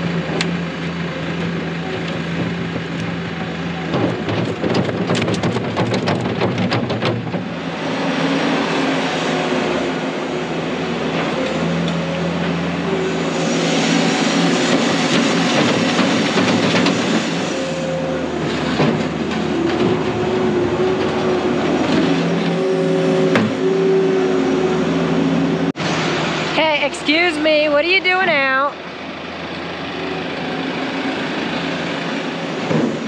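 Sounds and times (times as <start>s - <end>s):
loader diesel engine working: 0.0s - 33.0s
loader knocks: 1.4s - 8.6s, 14.5s - 23.8s.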